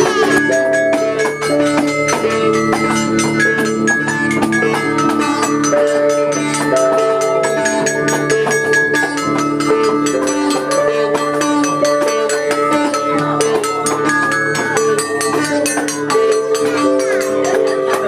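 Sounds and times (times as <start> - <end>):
guitar: 0.0 - 18.0
hand percussion ticking beat: 0.0 - 18.0
melodica: 0.0 - 18.0
sitar: 0.0 - 18.0.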